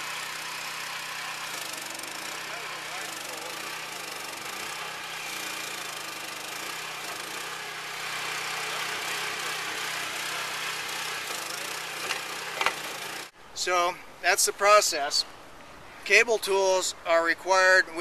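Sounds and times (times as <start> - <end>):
drilling rig engine running: 0.0 - 13.3.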